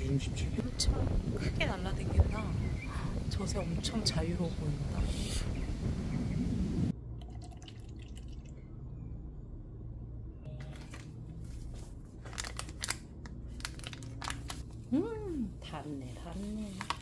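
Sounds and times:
low steady hum: 0.0s - 17.0s
paper and plastic cup crinkling: 10.6s - 14.8s, 16.3s - 17.0s.

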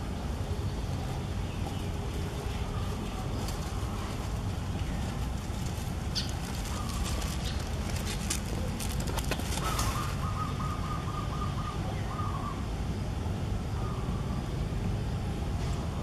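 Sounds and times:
low outdoor rumble: 0.0s - 16.0s
bird trilling: 6.1s - 12.7s.

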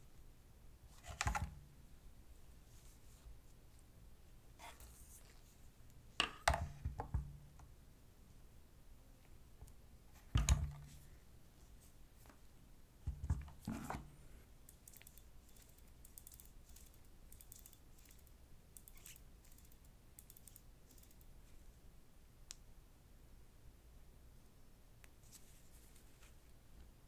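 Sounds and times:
faint quick light clicks: 22.5s - 22.7s.

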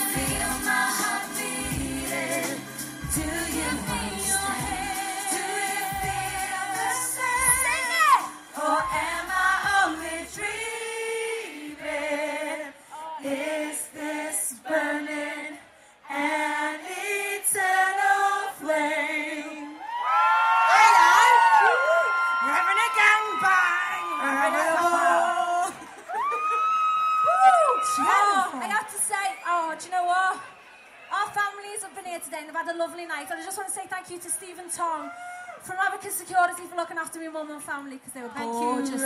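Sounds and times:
pop backing track: 0.0s - 11.2s
women singing in harmony: 0.0s - 20.0s, 23.9s - 25.8s, 38.2s - 39.0s.

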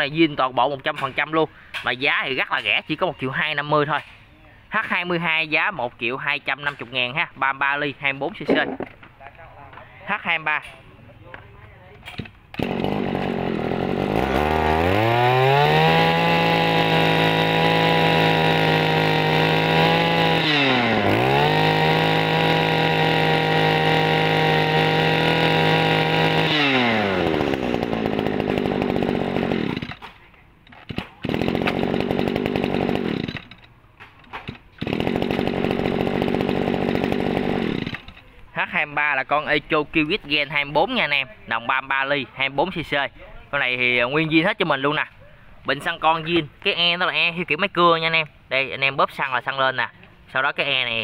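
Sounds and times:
brush-cutter engine revving: 12.0s - 30.1s, 30.7s - 33.7s, 34.4s - 38.3s.

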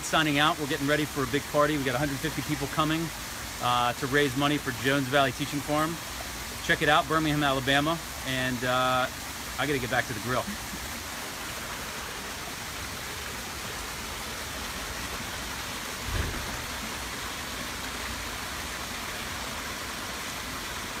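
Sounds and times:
waterfall splashing over stones: 0.0s - 21.0s
low thump: 16.0s - 16.8s.

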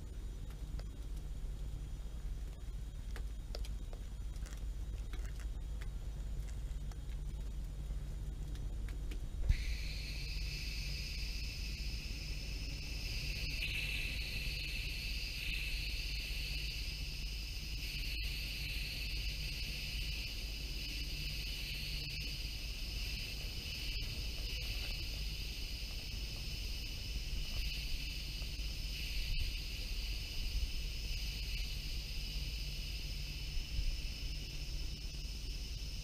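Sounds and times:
low hum: 0.0s - 36.0s
high-pitched insect-like drone: 9.5s - 36.0s.

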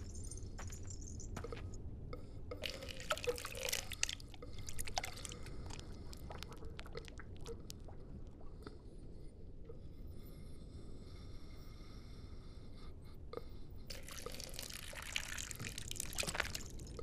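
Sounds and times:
steady low rumble: 0.0s - 14.0s
liquid splashing onto ground: 14.6s - 16.7s.

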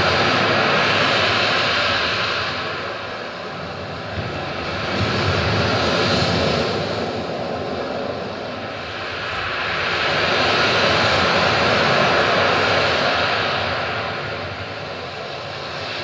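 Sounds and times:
steady rushing roar: 0.0s - 16.0s.

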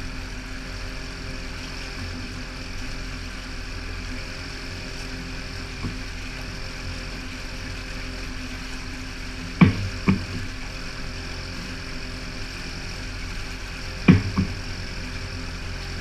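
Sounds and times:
outboard motor running: 0.0s - 16.0s
water churning: 0.0s - 16.0s
sharp thump: 9.6s - 10.5s, 14.1s - 14.6s.

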